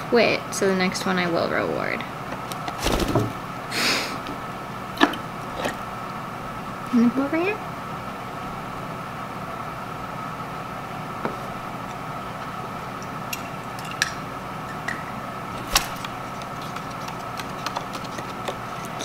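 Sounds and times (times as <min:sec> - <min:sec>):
steady room hum: 0:00.0 - 0:19.0.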